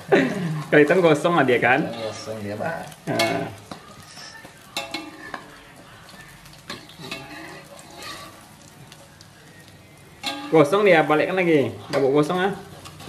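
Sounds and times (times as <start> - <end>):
omelette sizzling in hot oil: 0.0 - 13.0
metal spatula scraping a pan: 0.6 - 5.6, 6.5 - 8.8, 10.2 - 13.0.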